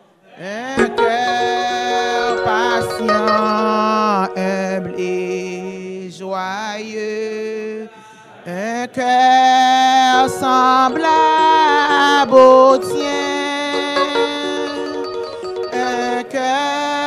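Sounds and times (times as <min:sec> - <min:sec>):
sustained accompaniment: 0:00.8 - 0:06.0, 0:10.2 - 0:16.5
people singing a slow hymn: 0:01.6 - 0:13.6.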